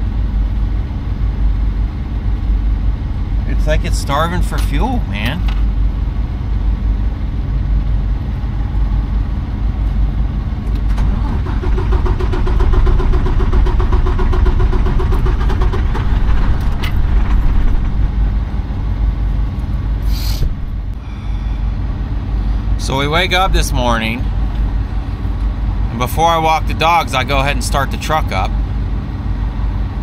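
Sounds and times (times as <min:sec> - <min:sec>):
diesel truck engine sputtering: 0:00.0 - 0:30.0
short hiss: 0:20.0 - 0:20.6.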